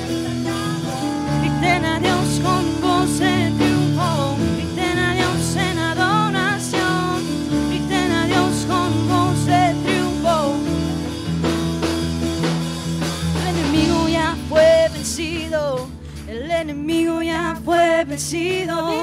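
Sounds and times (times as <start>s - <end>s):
voices singing: 0.0s - 4.0s
worship band playing: 0.0s - 19.0s.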